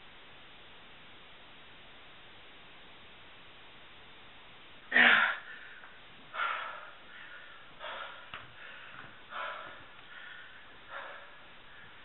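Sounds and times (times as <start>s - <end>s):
man breathing heavily: 4.9s - 12.0s.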